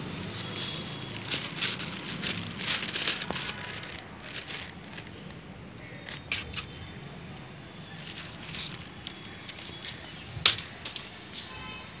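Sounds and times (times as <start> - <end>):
paper kite crinkling: 0.0 - 7.0, 7.8 - 11.6.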